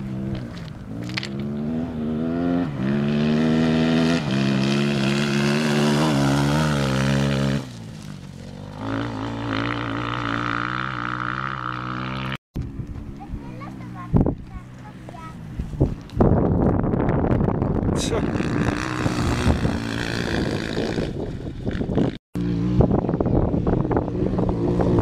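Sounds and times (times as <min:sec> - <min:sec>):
motorcycle engine at hard throttle: 0:00.0 - 0:07.8, 0:16.4 - 0:25.0.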